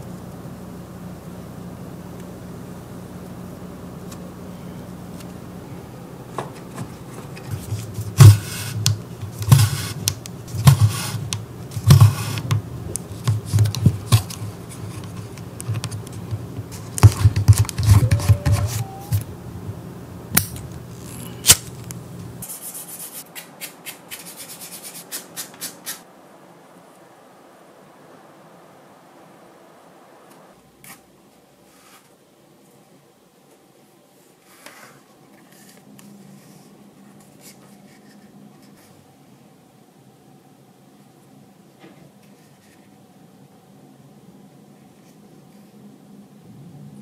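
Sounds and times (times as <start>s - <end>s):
low steady hum: 0.0s - 22.5s, 35.1s - 47.0s.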